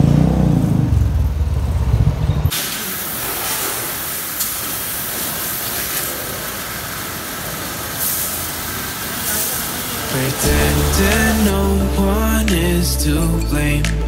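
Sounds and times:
pressure washer spray hissing: 0:02.5 - 0:11.8.

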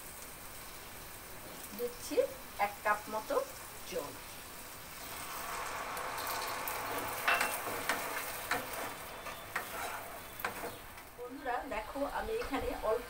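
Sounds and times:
water sizzling in hot pan: 0:00.0 - 0:13.0
wooden spatula knocking pan: 0:07.2 - 0:10.8.

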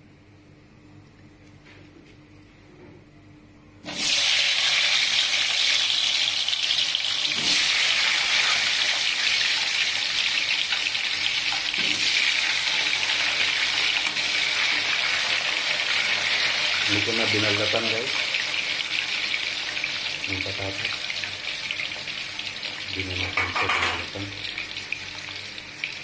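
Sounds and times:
potatoes deep-frying in oil: 0:03.9 - 0:26.0.

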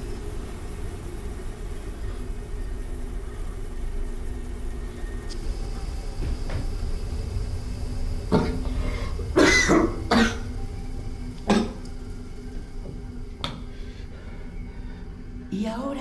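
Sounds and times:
low rumble: 0:00.0 - 0:16.0.

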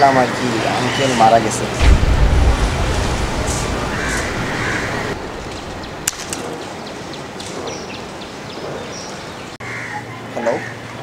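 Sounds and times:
low rumble: 0:01.8 - 0:06.6.

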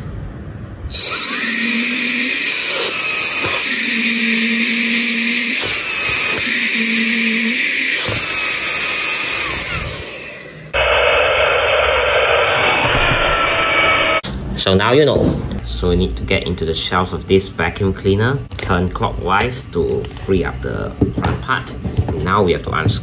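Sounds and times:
fan motor high-pitched whine: 0:00.0 - 0:14.2.

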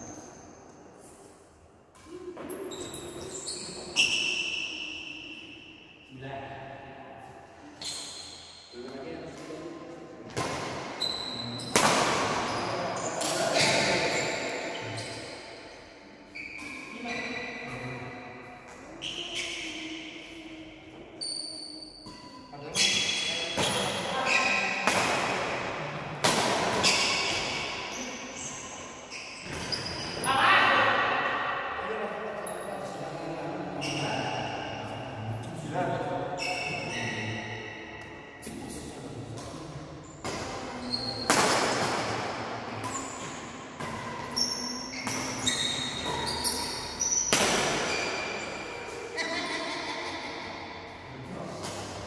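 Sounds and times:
shoes squeaking on floor: 0:02.4 - 0:05.0, 0:07.8 - 0:08.7, 0:10.9 - 0:11.8, 0:12.4 - 0:17.6, 0:18.9 - 0:24.8, 0:26.8 - 0:30.5, 0:33.8 - 0:34.7, 0:36.4 - 0:38.4, 0:40.0 - 0:41.8, 0:42.8 - 0:49.7
rackets hitting shuttlecock: 0:10.3 - 0:14.6, 0:22.0 - 0:28.0, 0:39.4 - 0:49.1, 0:51.6 - 0:52.0
racket striking shuttlecock: 0:11.7 - 0:12.5, 0:24.7 - 0:25.6, 0:40.2 - 0:44.4, 0:47.2 - 0:49.0.

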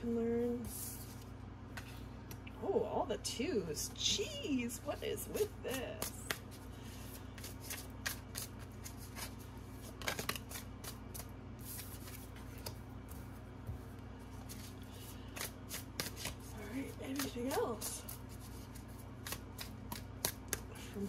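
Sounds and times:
cards being shuffled: 0:05.2 - 0:21.0.

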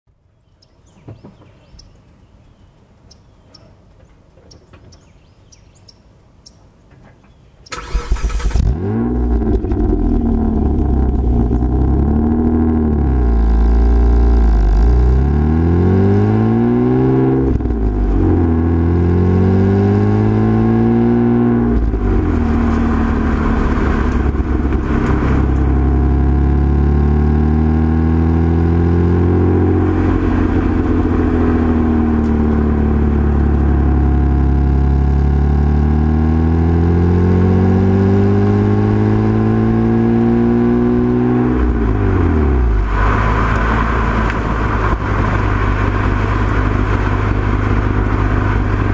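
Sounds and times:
car exhaust revving: 0:07.7 - 0:48.9.

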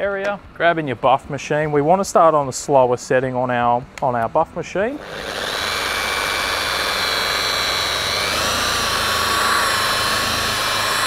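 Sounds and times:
electric polisher motor whine: 0:05.0 - 0:11.0.

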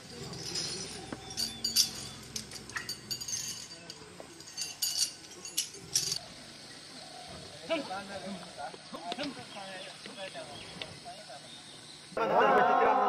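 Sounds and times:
iron chain clinking: 0:00.0 - 0:06.8.

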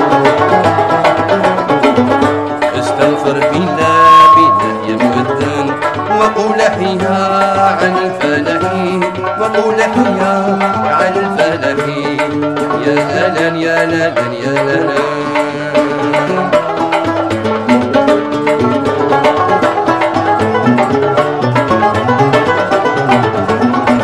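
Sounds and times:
hand drum rhythm: 0:00.0 - 0:24.0
plucked string melody: 0:00.0 - 0:24.0.

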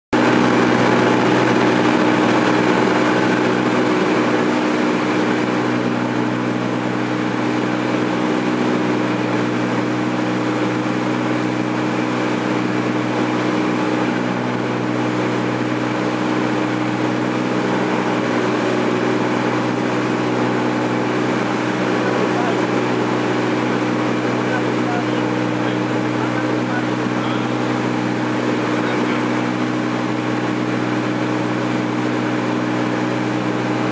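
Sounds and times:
propeller plane engine droning: 0:00.1 - 0:33.9.

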